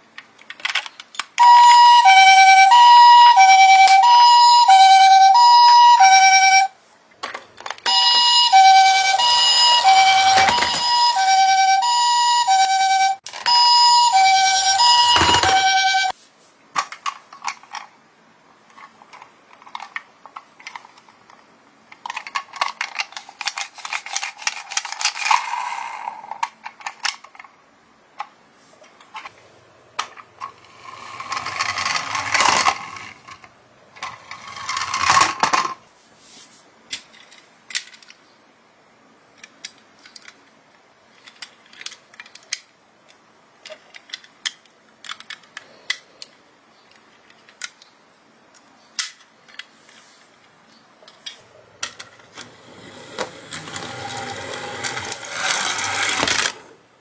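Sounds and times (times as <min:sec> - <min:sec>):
toy clicks and rattles: 0:00.2 - 0:02.6, 0:16.8 - 0:17.9, 0:18.7 - 0:27.5, 0:30.0 - 0:35.8, 0:36.9 - 0:38.2, 0:39.4 - 0:40.5, 0:41.1 - 0:42.7, 0:43.6 - 0:46.3, 0:46.9 - 0:47.9, 0:51.1 - 0:56.7
toy car rolling down wooden plank: 0:07.7 - 0:16.1, 0:22.0 - 0:27.3, 0:30.0 - 0:35.8, 0:51.8 - 0:56.8.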